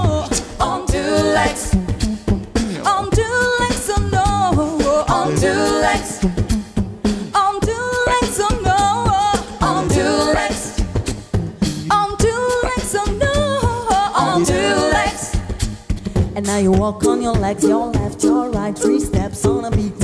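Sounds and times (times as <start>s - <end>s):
a cappella group singing: 0.0s - 20.0s
vocal percussion beat: 0.0s - 20.0s.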